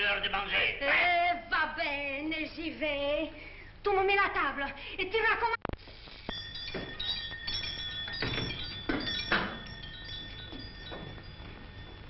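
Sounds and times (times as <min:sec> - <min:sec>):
metal pots clinking: 0:06.3 - 0:12.0.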